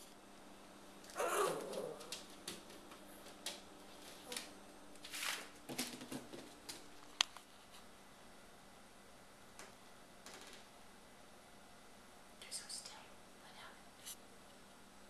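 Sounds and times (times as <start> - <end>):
newspaper rustling: 5.0 - 7.0.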